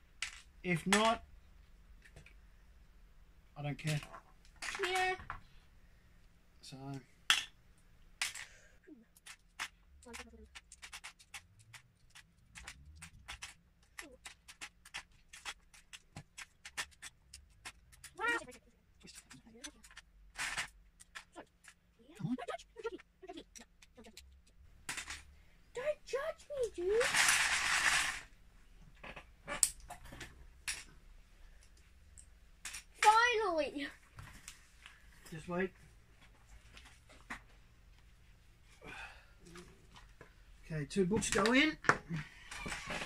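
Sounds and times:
plastic bricks clicking and clattering: 0:00.2 - 0:01.2, 0:03.8 - 0:05.3, 0:08.2 - 0:21.8, 0:23.4 - 0:25.3, 0:26.8 - 0:28.3.

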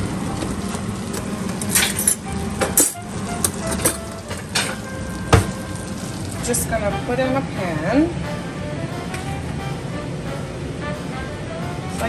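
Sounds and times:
metal utensils and dishes clinking: 0:00.3 - 0:06.4.

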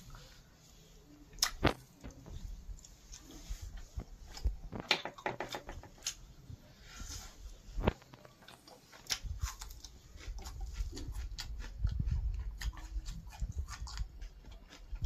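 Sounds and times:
fingers tearing bread: 0:07.8 - 0:15.0
chewing and mouth clicks: 0:08.0 - 0:15.0.

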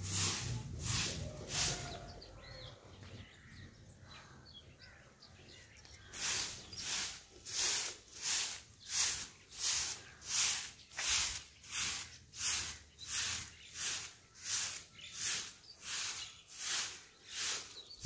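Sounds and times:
grass broom sweeping bricks: 0:00.0 - 0:02.3, 0:06.1 - 0:18.0.

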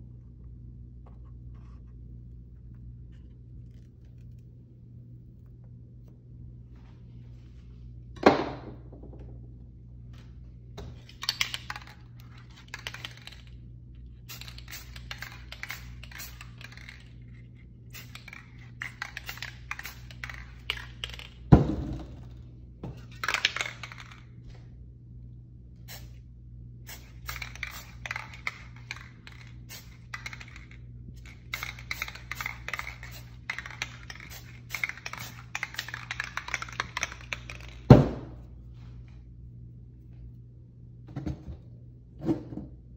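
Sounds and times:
steady low hum: 0:00.0 - 0:42.9
spray-paint cans rattling: 0:11.0 - 0:13.6, 0:14.3 - 0:17.2, 0:17.9 - 0:21.5, 0:23.0 - 0:24.2, 0:26.9 - 0:38.0.

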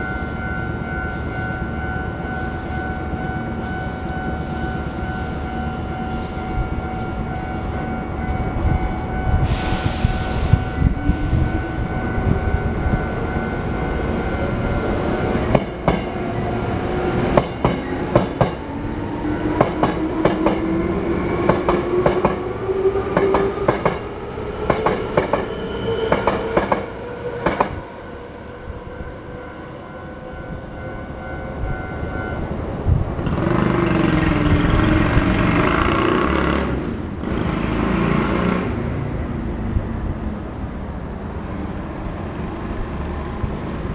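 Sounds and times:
crossing alarm ringing: 0:00.0 - 0:23.4, 0:29.1 - 0:32.8.

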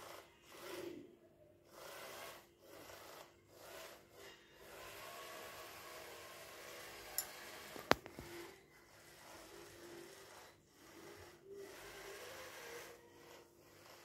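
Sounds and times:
small motors whirring: 0:00.0 - 0:14.0.

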